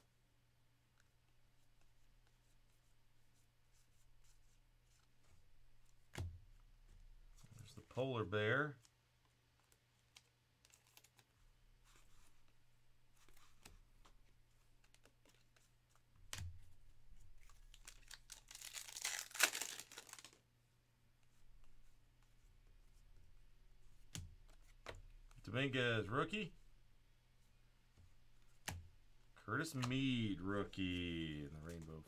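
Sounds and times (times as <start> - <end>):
cards clicking and tapping: 13.2 - 20.4, 28.0 - 28.9, 29.7 - 32.0
foil wrapper ripping: 17.7 - 20.4.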